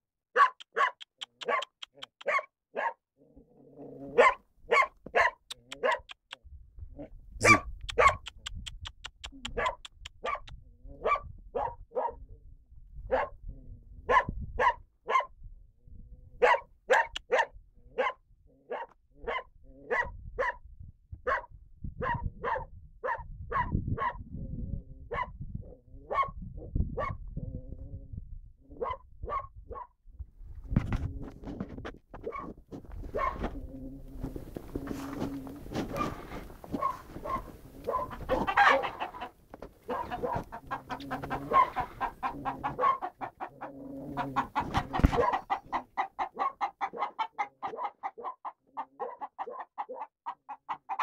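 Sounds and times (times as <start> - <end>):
dog barking: 0.4 - 3.0, 4.1 - 6.2, 7.4 - 8.3, 9.4 - 12.2, 13.1 - 13.4, 14.1 - 15.3, 16.4 - 20.6, 21.2 - 24.2, 25.1 - 25.3, 26.1 - 26.4, 27.0 - 27.2, 28.8 - 29.9, 32.3 - 32.5, 33.1 - 33.4, 36.8 - 39.2, 39.9 - 40.4, 41.3 - 43.2, 44.4 - 45.6, 46.2 - 50.1.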